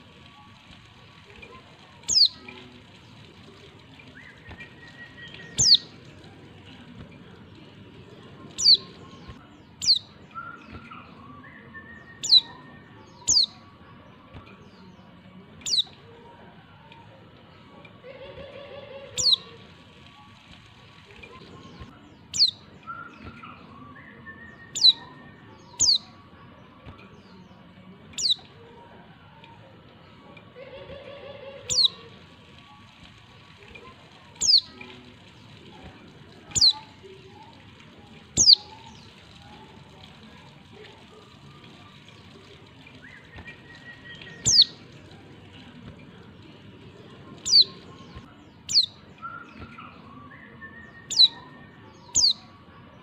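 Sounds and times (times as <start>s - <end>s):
bird high thin chirps: 2.0s - 2.6s, 4.0s - 6.1s, 8.6s - 11.0s, 11.8s - 13.6s, 15.6s - 16.0s, 19.2s - 19.5s, 21.2s - 23.7s, 24.4s - 26.1s, 28.2s - 28.5s, 31.7s - 32.0s, 34.4s - 35.0s, 36.5s - 37.0s, 38.3s - 39.4s, 42.8s - 44.8s, 47.4s - 50.0s, 50.8s - 52.5s.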